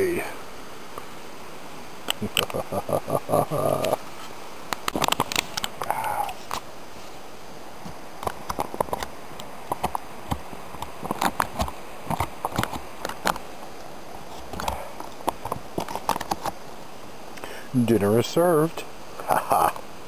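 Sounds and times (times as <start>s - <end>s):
foil pouch crinkling: 14.2s - 16.6s.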